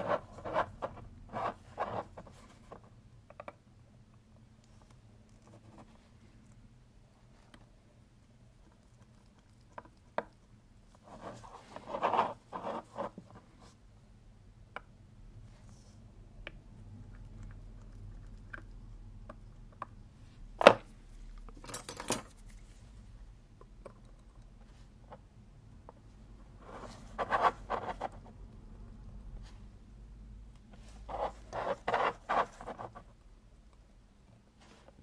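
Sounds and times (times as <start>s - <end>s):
scratchy handling noise: 0.0s - 2.9s, 11.0s - 13.8s, 26.6s - 28.3s, 30.7s - 33.1s.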